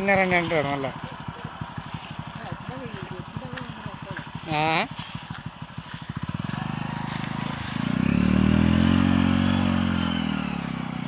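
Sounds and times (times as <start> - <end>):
small motorcycle engine revving: 0.0 - 11.0.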